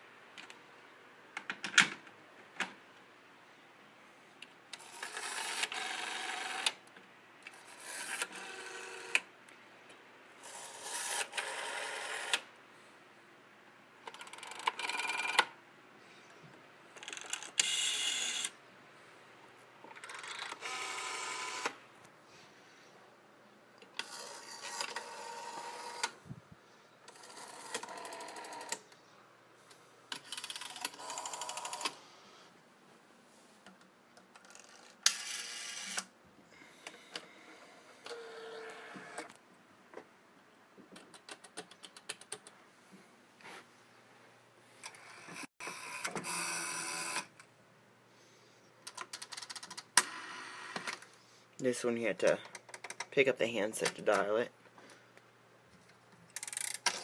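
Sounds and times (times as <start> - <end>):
rotary telephone dial whirring: 4.8 - 6.8, 7.5 - 9.3, 10.4 - 12.4, 14.1 - 15.5, 17.0 - 18.6, 19.9 - 21.8, 24.0 - 26.2, 27.1 - 28.9, 30.1 - 32.0, 34.4 - 36.1, 38.0 - 39.4, 44.8 - 47.3, 48.9 - 51.0.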